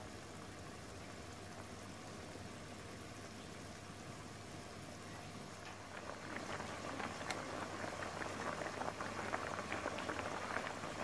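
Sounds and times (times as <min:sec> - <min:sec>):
broth bubbling: 0:05.4 - 0:11.0.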